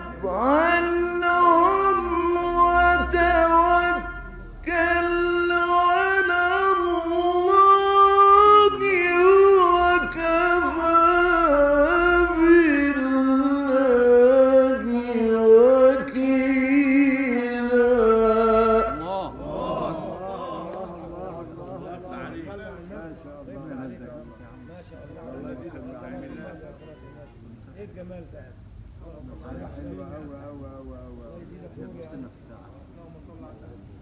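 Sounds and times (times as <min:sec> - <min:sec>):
low recording hum: 0:00.0 - 0:24.0
man chanting melodic recitation: 0:00.0 - 0:27.3.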